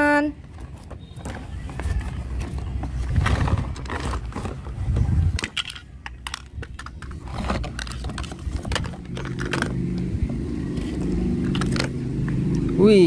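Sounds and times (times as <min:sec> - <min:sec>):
cardboard rubbing and rustling: 0:00.4 - 0:05.3, 0:07.0 - 0:09.8
plastic parts clicking and knocking: 0:00.4 - 0:10.1, 0:11.0 - 0:12.4.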